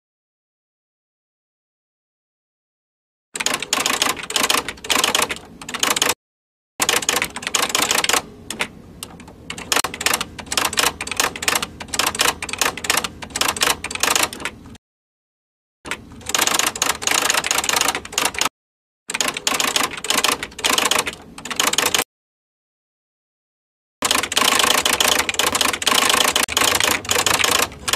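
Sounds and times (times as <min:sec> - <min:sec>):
keyboard typing clicks: 0:03.4 - 0:06.2, 0:06.8 - 0:14.6, 0:15.9 - 0:18.5, 0:19.1 - 0:22.0, 0:24.0 - 0:27.9.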